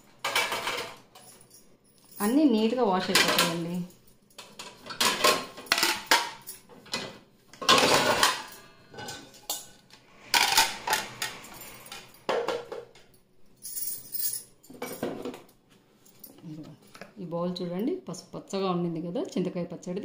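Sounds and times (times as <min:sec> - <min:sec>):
plates clattering: 0:00.2 - 0:01.3, 0:04.4 - 0:13.1.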